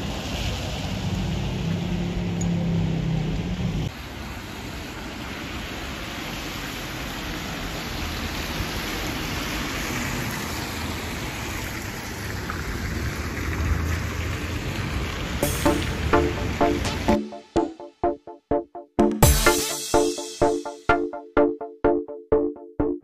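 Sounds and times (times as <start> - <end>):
tyres hissing on wet road: 0.0 - 2.2, 3.4 - 15.4.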